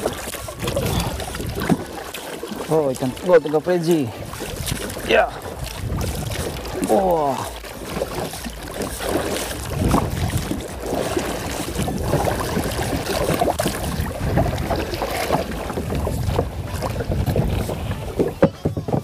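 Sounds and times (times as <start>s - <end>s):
water lapping against a hull: 0.0s - 19.0s
wind buffeting microphone: 0.0s - 19.0s
knocks on a hull: 12.5s - 19.0s.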